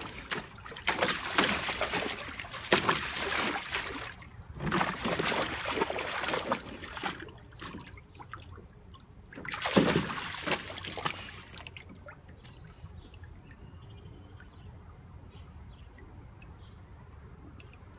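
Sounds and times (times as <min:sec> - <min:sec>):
dog splashing in water: 0:00.0 - 0:08.4, 0:09.3 - 0:12.2
water trickling and dripping: 0:00.0 - 0:09.4, 0:10.2 - 0:17.9.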